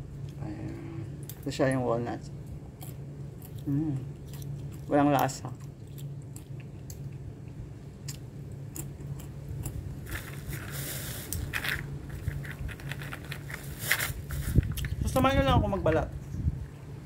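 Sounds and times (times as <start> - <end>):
steady low hum: 0.0 - 17.0
walnuts crackling: 8.1 - 15.2
bag rustling: 10.0 - 14.8.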